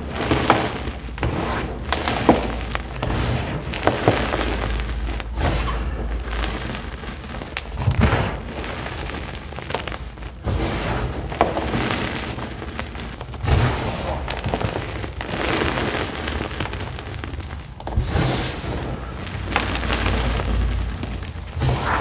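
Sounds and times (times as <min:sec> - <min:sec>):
hands crunching powder: 0:00.0 - 0:22.0.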